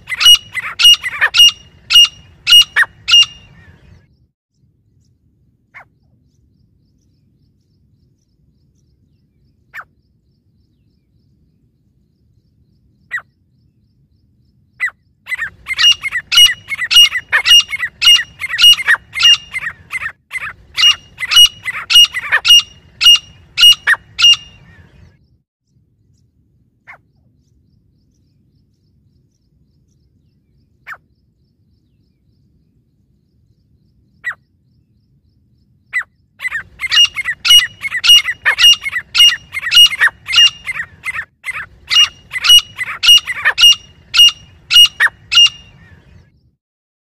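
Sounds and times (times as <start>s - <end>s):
francolins calling shrilly: 0.0s - 3.9s, 14.8s - 25.0s, 36.0s - 46.2s.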